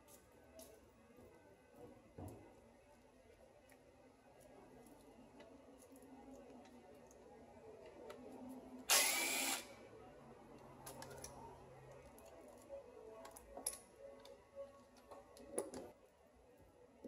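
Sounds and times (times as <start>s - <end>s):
power tool burst: 8.9s - 9.7s.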